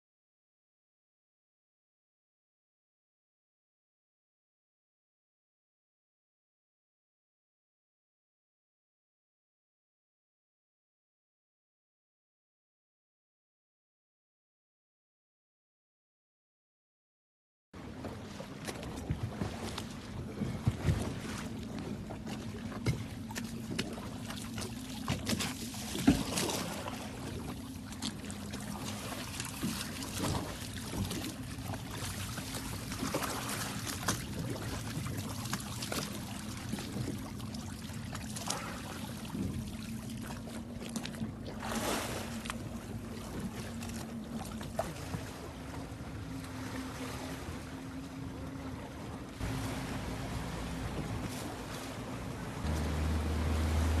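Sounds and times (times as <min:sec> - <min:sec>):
rush of boat and water: 0:17.8 - 0:54.0
water splashing against boat: 0:17.8 - 0:54.0
outboard motor idling: 0:45.4 - 0:54.0.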